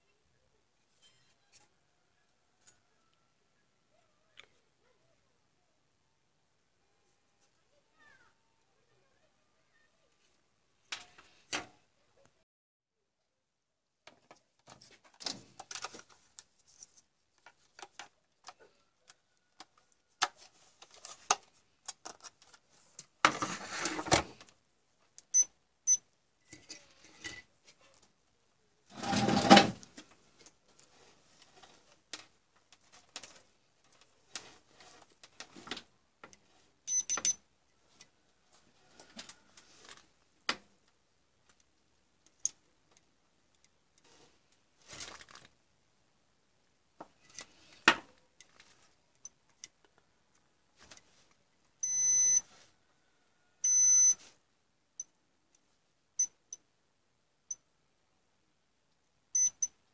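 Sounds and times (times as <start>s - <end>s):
tools handled on workbench: 19.6s - 24.5s, 26.4s - 28.1s.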